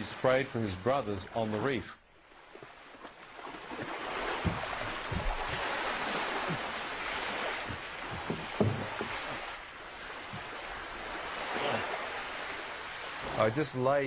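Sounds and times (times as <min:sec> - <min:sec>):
sea waves washing in: 0:00.0 - 0:14.0
dull low thumps: 0:03.8 - 0:10.9.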